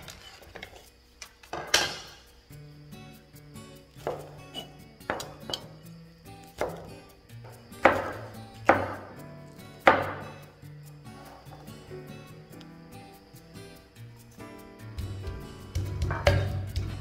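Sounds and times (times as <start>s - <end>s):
soft background music: 0.0s - 17.0s
knife chopping on wooden board: 4.0s - 5.6s, 6.5s - 6.9s, 7.8s - 9.1s.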